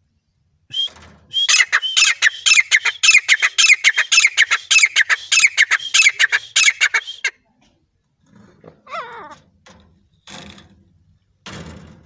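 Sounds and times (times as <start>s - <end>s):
francolin calling harsh repeated notes: 0.7s - 7.3s.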